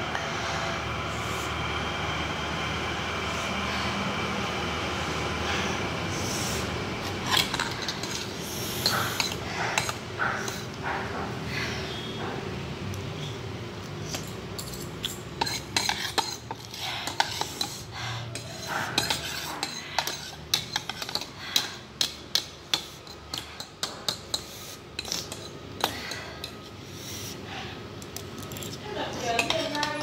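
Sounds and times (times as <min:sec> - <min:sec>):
cutlery clinking against bowl: 0:07.3 - 0:11.0, 0:14.1 - 0:26.6, 0:28.1 - 0:30.0.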